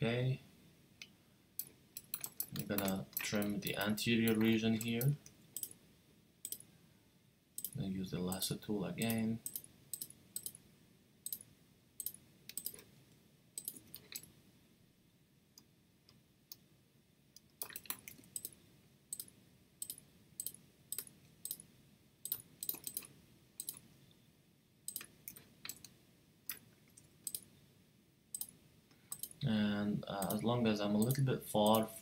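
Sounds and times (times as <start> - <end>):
computer mouse clicking: 1.0 - 5.8, 6.4 - 6.7, 7.6 - 7.8, 9.1 - 10.6, 11.2 - 12.9, 13.6 - 14.3, 17.4 - 23.8, 24.9 - 27.5, 28.4 - 29.4.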